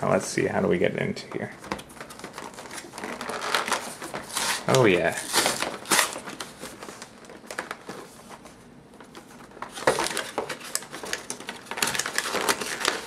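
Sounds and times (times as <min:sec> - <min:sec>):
cardboard crackling and tearing: 0:01.8 - 0:08.4, 0:09.6 - 0:13.0.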